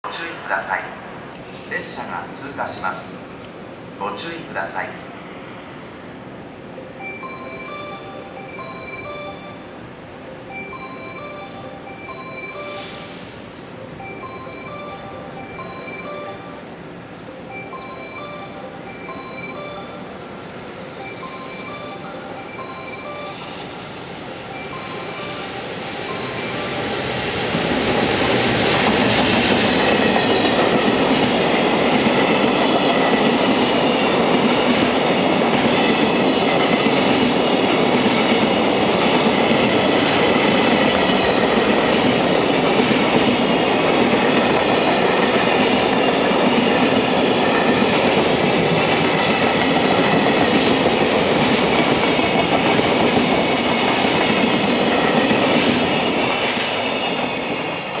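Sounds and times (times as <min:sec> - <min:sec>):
rail joint clicks: 0:02.5 - 0:03.6
train wheels clattering on rails: 0:25.4 - 0:58.0.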